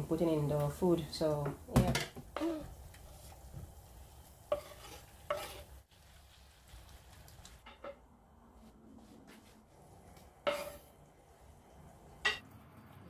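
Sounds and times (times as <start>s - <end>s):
vegetables sizzling in a frying pan: 0.0s - 7.8s, 10.5s - 11.0s
wooden spoon stirring: 2.2s - 8.0s, 9.3s - 11.0s.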